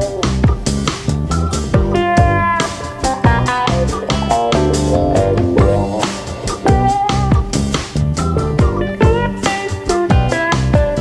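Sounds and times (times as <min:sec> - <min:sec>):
background music with drums: 0:00.0 - 0:11.0.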